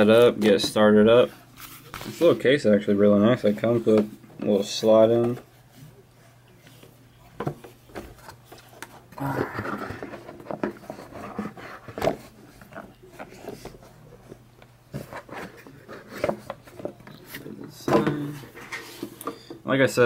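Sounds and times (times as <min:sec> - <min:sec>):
tablet case rubbing and rustling: 0:08.0 - 0:19.2.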